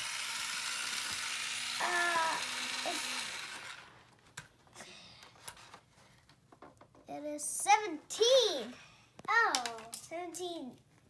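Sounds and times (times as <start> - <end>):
toy power tool motor whirring: 0.0 - 4.0.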